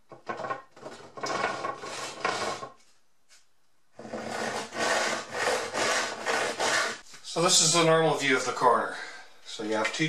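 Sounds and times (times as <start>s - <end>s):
hand saw ripping a board: 4.0s - 7.0s.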